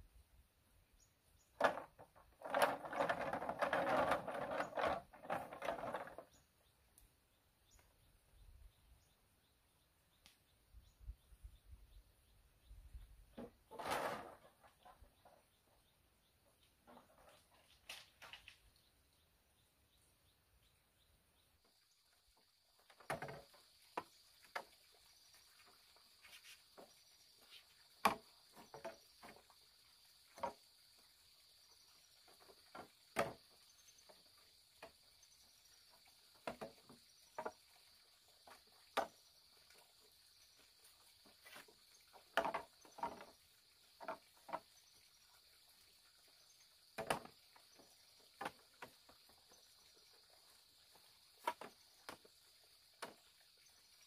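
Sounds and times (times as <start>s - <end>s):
faint insect chirps: 14.6s - 54.0s
bamboo poles knocking: 28.0s - 29.4s, 42.1s - 43.3s, 47.0s - 47.3s.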